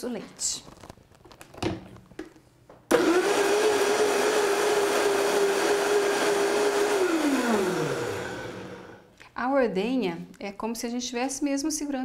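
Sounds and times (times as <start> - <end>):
blender motor running: 2.9 - 9.0.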